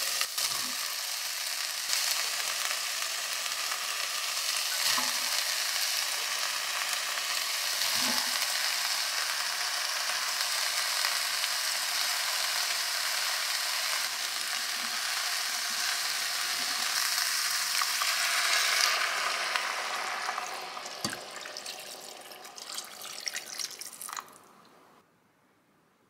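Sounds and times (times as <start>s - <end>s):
meat and vegetables sizzling: 0.0s - 24.0s
water pouring: 19.8s - 24.6s.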